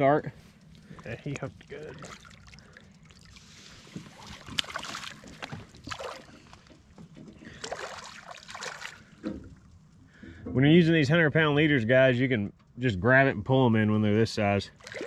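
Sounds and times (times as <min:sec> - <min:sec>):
fish splashing at water surface: 0:00.6 - 0:06.7, 0:07.4 - 0:09.3, 0:14.8 - 0:15.0.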